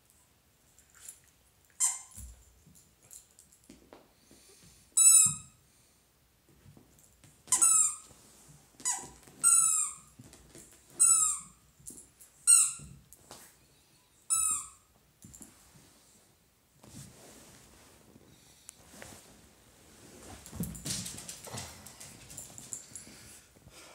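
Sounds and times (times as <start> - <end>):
rubber toy squeaking: 7.5 - 8.0, 8.8 - 10.1, 11.0 - 11.5, 14.3 - 14.8.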